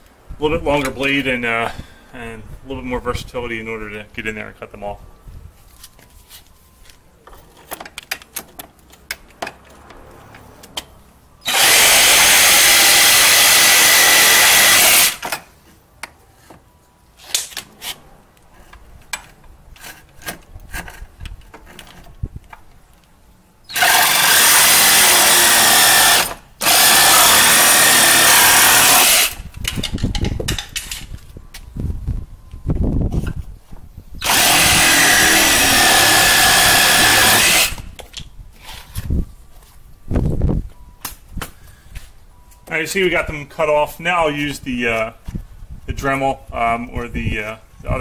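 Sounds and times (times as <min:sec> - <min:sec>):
reciprocating saw cutting: 0:11.4 - 0:15.2, 0:23.7 - 0:29.4, 0:34.2 - 0:37.9.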